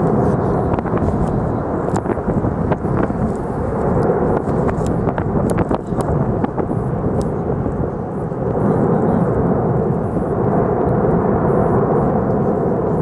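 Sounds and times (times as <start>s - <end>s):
deep rumble of erupting lava: 0.0s - 13.0s
sharp cracks and pops: 0.7s - 7.8s.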